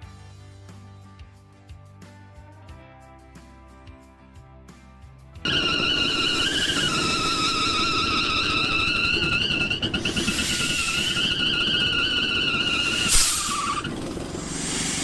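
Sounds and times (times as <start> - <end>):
engine rumble: 5.4 - 15.0
high whistle: 5.5 - 13.8.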